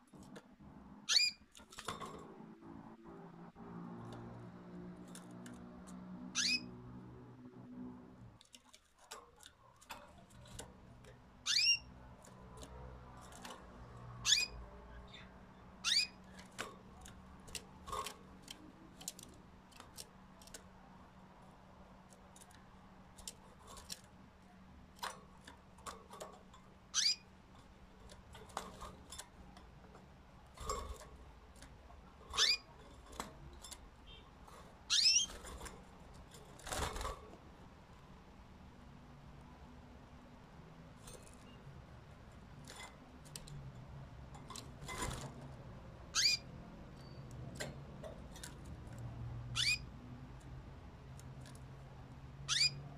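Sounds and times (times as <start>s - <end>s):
canaries chirping: 0.0s - 37.2s, 44.3s - 50.4s, 52.4s - 52.9s.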